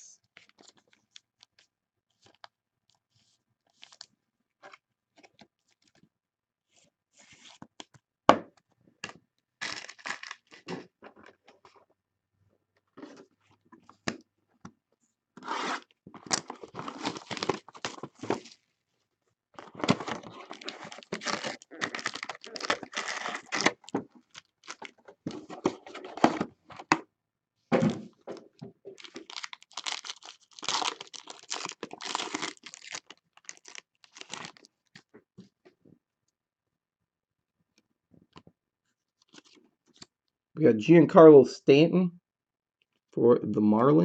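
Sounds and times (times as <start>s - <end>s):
packaging tearing and crinkling: 9.6s - 10.7s, 15.5s - 18.6s, 19.6s - 25.0s, 28.9s - 34.7s.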